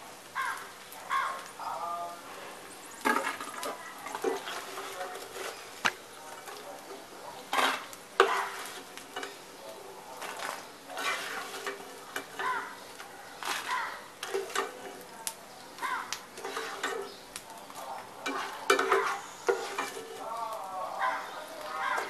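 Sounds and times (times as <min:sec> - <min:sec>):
ghee sizzling in pan: 0:00.0 - 0:22.0
spatula scraping pan and plate: 0:03.1 - 0:05.8, 0:07.4 - 0:09.4, 0:10.2 - 0:12.7, 0:13.4 - 0:15.0, 0:16.4 - 0:17.2, 0:18.2 - 0:20.2.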